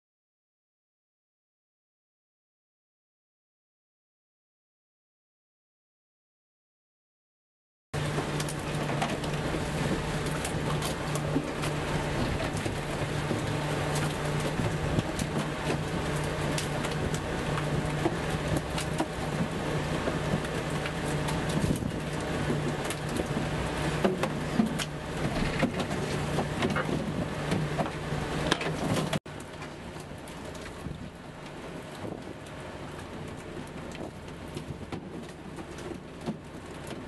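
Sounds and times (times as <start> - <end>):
boat motor running: 8.0 - 37.0
water splashing: 8.0 - 37.0
knocks and clatter of gear: 24.0 - 29.7.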